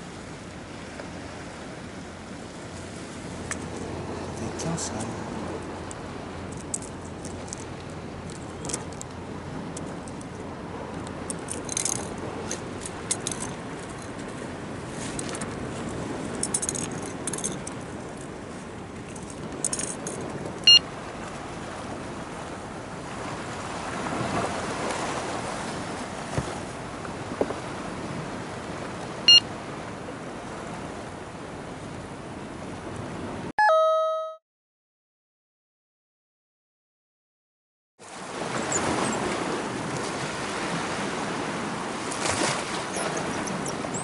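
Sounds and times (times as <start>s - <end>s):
short high electronic beeps: 33.6s - 34.4s.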